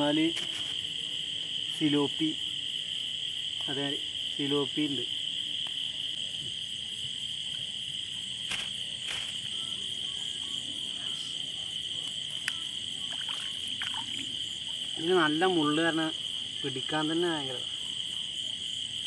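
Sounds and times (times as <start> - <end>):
crickets trilling: 0.0 - 19.0
splashes and knocks in water: 13.1 - 14.2.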